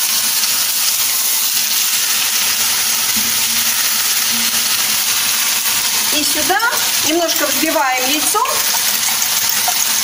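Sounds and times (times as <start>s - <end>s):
patty sizzling in a frying pan: 0.0s - 10.0s.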